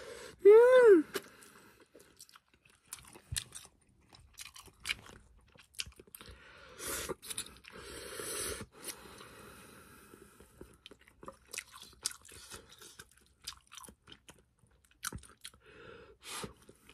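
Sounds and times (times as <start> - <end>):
mouth chewing clicks and smacks: 1.2 - 6.4, 10.6 - 15.6.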